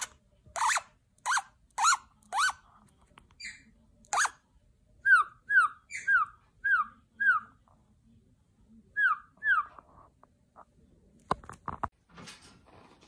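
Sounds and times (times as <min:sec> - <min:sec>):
parrot whining calls: 0:05.0 - 0:07.5.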